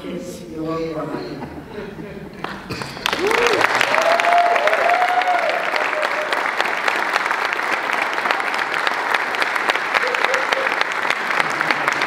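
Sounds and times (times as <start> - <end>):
crowd clapping: 2.4 - 12.0
people cheering: 3.0 - 12.0.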